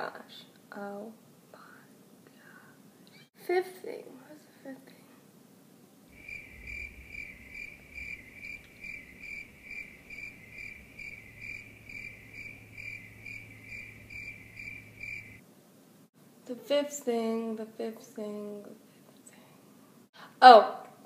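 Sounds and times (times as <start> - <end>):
crickets chirping: 6.1 - 15.4.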